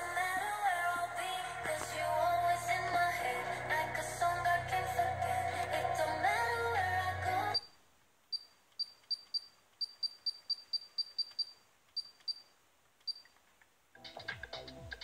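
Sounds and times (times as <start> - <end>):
radio music: 0.0 - 7.6.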